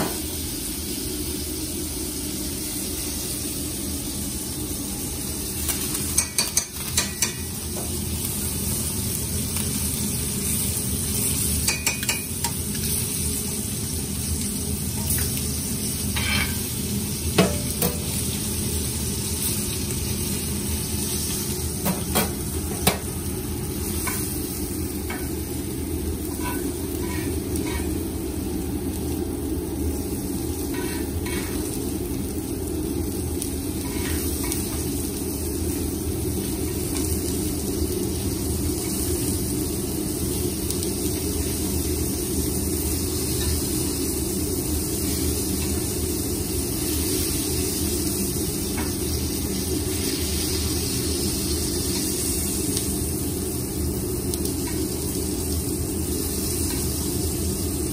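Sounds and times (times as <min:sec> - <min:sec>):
steak sizzling in a skillet: 0:00.0 - 0:57.9
metal spoon clinking on pan: 0:06.1 - 0:07.5, 0:11.6 - 0:12.6.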